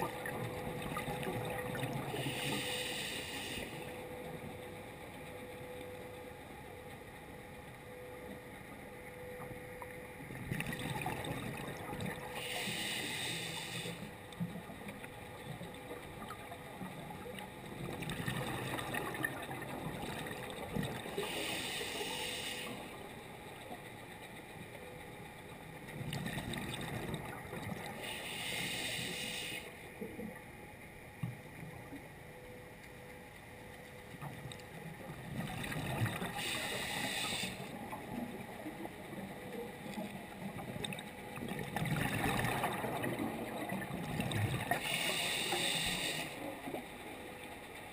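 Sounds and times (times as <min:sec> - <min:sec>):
diver breathing through regulator: 0:02.2 - 0:03.9, 0:12.4 - 0:14.1, 0:21.2 - 0:22.8, 0:28.0 - 0:29.7, 0:36.4 - 0:37.7, 0:44.8 - 0:46.4.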